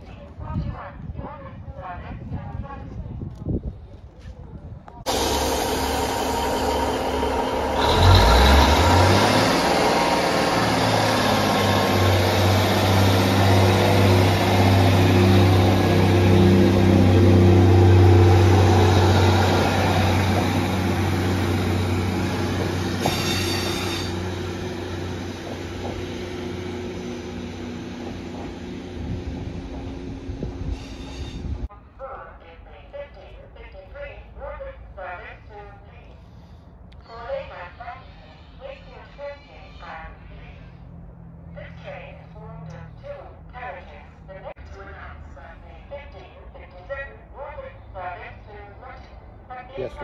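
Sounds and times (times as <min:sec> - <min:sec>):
diesel train engine pulling away: 0:05.1 - 0:31.7.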